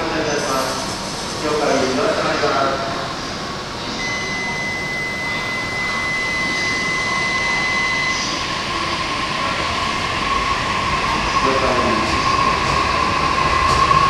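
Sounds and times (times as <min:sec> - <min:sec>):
train rushing hiss: 0:00.0 - 0:03.5.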